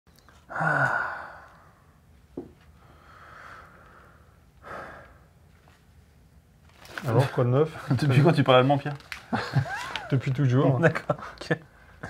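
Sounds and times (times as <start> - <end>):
man sighing: 0.5 - 1.6.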